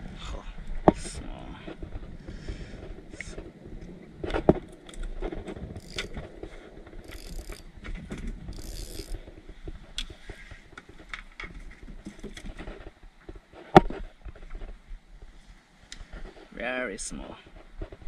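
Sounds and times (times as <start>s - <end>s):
fishing reel clicking and whirring: 5.8s - 6.2s, 7.0s - 7.7s, 8.5s - 9.2s.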